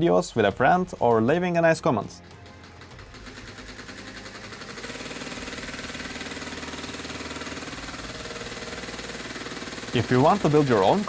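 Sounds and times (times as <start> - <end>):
air compressor piston pumping: 2.2 - 11.0
cordless drill motor running: 2.2 - 11.0.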